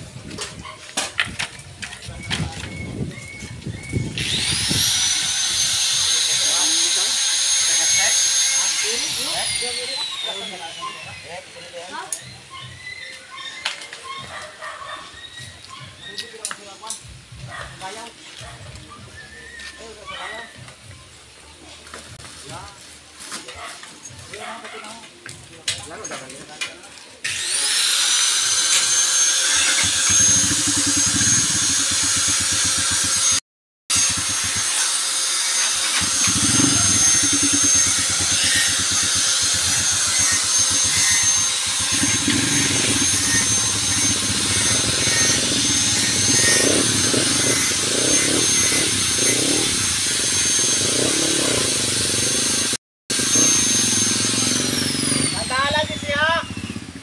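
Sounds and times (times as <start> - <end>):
power tool motor whining: 1.2 - 12.5, 27.2 - 57.0
grinding noise: 1.4 - 10.3, 27.3 - 57.0.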